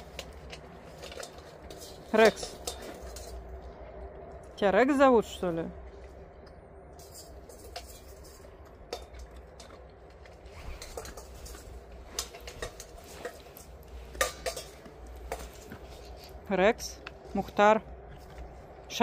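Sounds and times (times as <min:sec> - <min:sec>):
clinks against metal bowl: 0:00.0 - 0:03.4, 0:10.8 - 0:15.6
dog eating from metal bowl: 0:00.0 - 0:04.6, 0:06.9 - 0:16.4.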